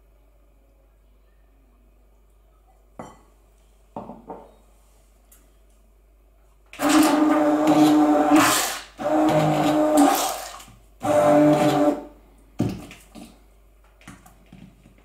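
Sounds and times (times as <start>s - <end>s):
knocks and clinks on glass bowl: 3.0s - 3.3s
electric hand blender running: 6.8s - 12.1s.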